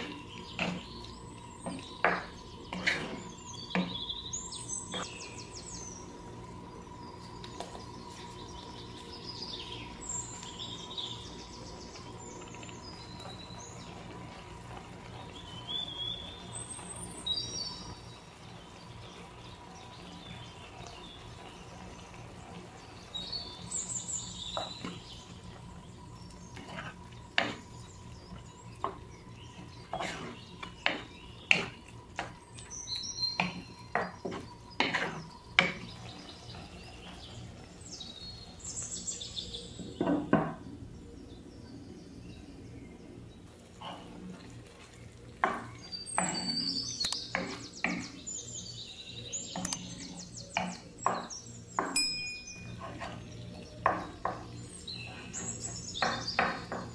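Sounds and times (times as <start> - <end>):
birds chirping: 0.0 - 56.9
faint steady hum: 0.0 - 56.9
wooden spatula scraping frying pan: 1.6 - 3.9, 29.9 - 31.8, 33.4 - 36.0.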